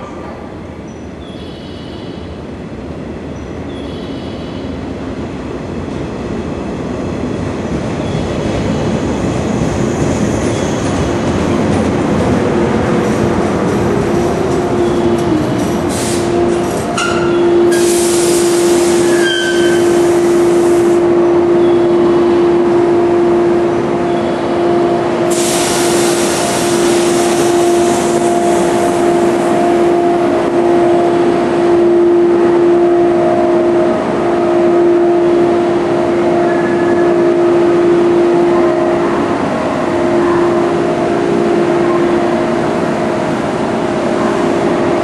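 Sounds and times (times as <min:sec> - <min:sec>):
train equipment humming: 0:00.0 - 0:45.0
loud air hissing: 0:15.8 - 0:21.0, 0:25.2 - 0:29.5.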